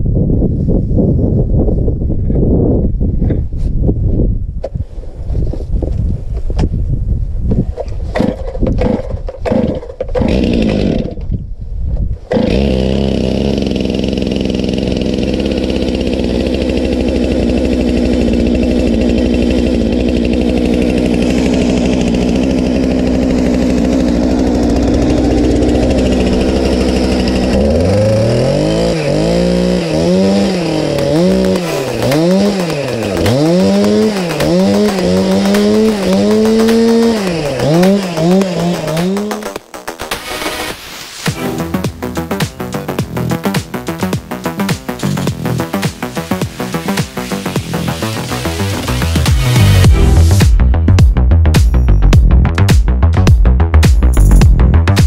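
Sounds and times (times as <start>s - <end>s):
chainsaw engine revving: 8.1s - 11.3s, 12.3s - 50.7s.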